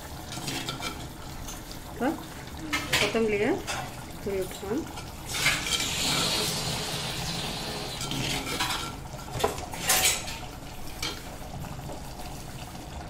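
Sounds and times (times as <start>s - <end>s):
ladle scraping clay pot: 5.3s - 10.4s.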